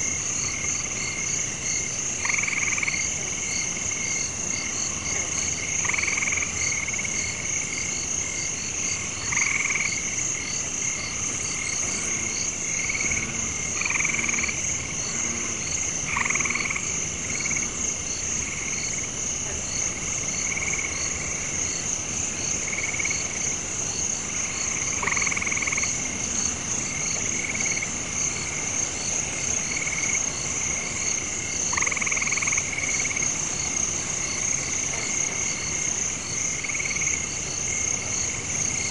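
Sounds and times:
frogs croaking: 0.0s - 38.9s
high-pitched insect drone: 7.9s - 21.8s.

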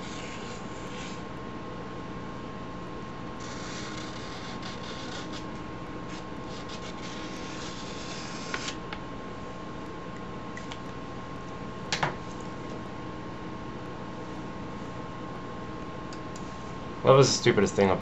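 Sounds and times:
marker scratching on paper: 0.0s - 1.2s, 6.1s - 8.8s.

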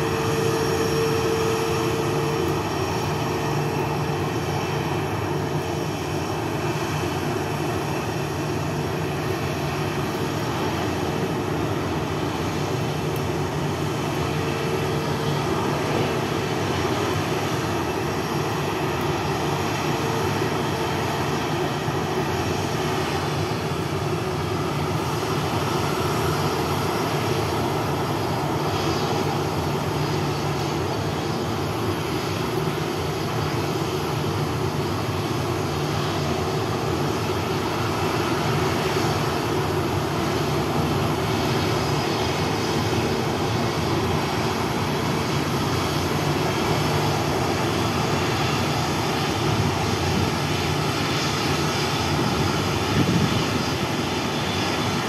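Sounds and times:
jet engines running: 0.0s - 55.0s.

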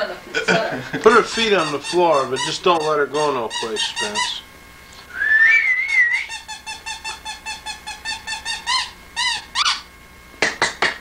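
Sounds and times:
hand claps: 10.4s - 11.0s.

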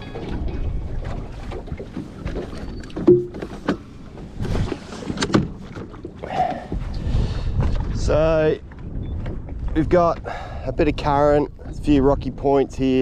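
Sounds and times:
low rumble of wind and water: 0.0s - 13.0s.

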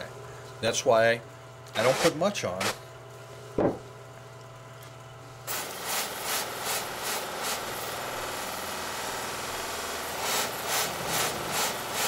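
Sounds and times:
bench buffer motor running: 0.0s - 12.0s
razor blade rubbing on buffing wheel: 1.8s - 2.2s.

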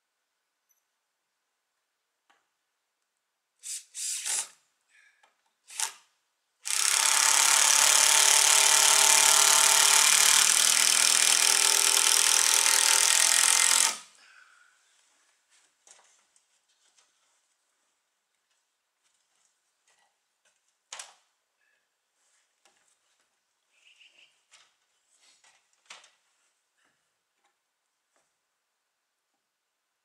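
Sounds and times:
power drill running: 5.7s - 6.0s, 6.6s - 14.1s.

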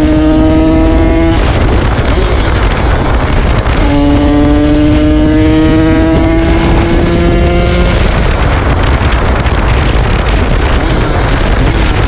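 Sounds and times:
two-stroke engine revving: 0.0s - 8.3s.

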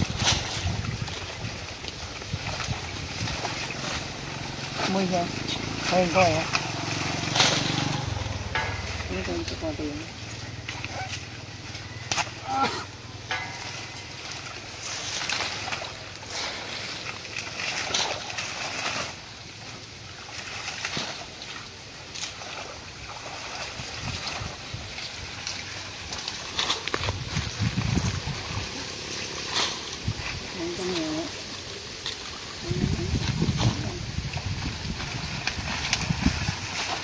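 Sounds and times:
water splashing and sloshing: 0.0s - 37.0s
plant stems rustling and knocking: 13.2s - 16.7s.

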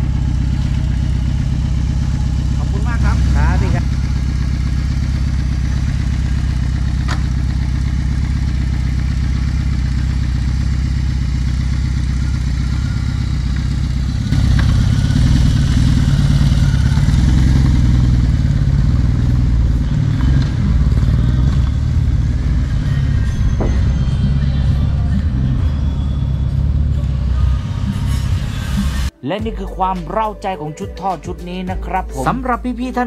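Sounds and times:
motorcycle engine idling and revving: 0.0s - 29.1s.

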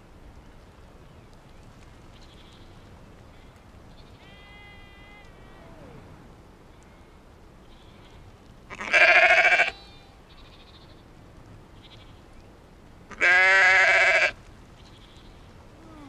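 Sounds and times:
sheep bleating: 4.2s - 5.9s, 7.7s - 10.9s, 13.1s - 14.4s.

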